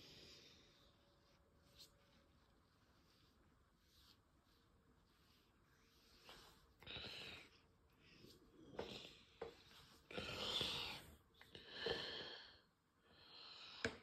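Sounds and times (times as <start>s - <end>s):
person breathing slowly: 5.9s - 14.0s.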